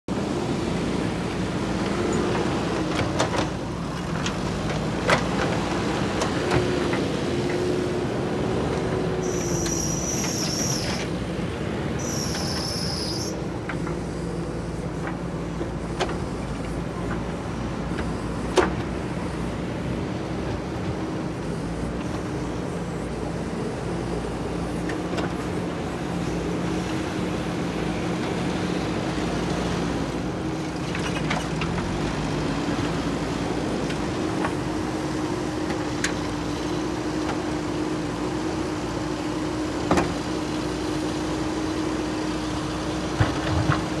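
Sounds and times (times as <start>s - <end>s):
diesel engine running under load: 0.1s - 44.0s
high-pitched whines: 9.2s - 11.1s.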